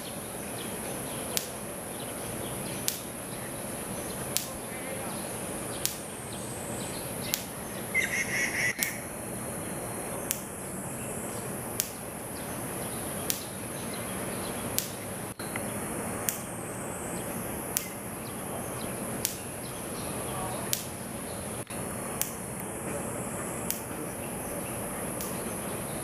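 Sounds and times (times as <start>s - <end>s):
rapid chattering call: 0.0s - 26.0s
sharp ticks: 1.3s - 1.8s, 2.8s - 3.2s, 4.1s - 4.7s, 5.7s - 6.2s, 7.1s - 7.6s, 8.7s - 9.2s, 10.2s - 10.6s, 11.7s - 12.1s, 13.2s - 13.6s, 14.6s - 16.6s, 17.7s - 18.1s, 19.2s - 19.6s, 20.7s - 21.0s, 22.2s - 22.7s, 23.7s - 23.9s, 25.2s - 25.4s.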